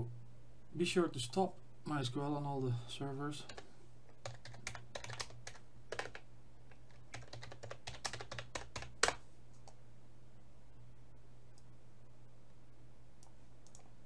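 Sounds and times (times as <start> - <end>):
faint low hum: 0.0 - 14.0
computer keyboard typing: 3.5 - 6.2, 6.8 - 9.8, 13.6 - 13.9.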